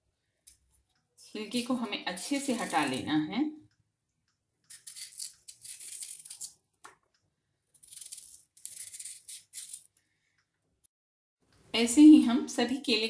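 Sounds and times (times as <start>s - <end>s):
knife scraping banana peel: 4.7s - 6.6s, 7.8s - 9.9s.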